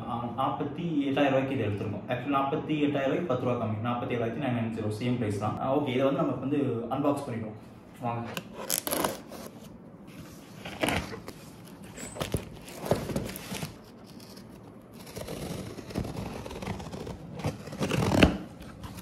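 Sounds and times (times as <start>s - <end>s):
box cutter slitting tape: 8.6s - 9.5s, 12.3s - 19.0s
cardboard box scrapes and knocks: 15.0s - 19.0s.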